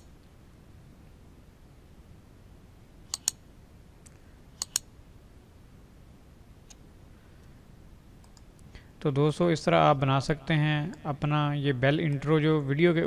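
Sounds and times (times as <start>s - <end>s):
quiet low hum: 0.0s - 13.0s
mouse clicks: 3.1s - 3.4s, 4.0s - 4.9s.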